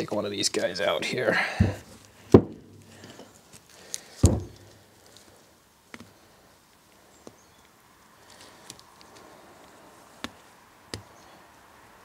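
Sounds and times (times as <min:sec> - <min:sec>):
loud thumps: 0:01.6 - 0:03.0, 0:04.2 - 0:04.6.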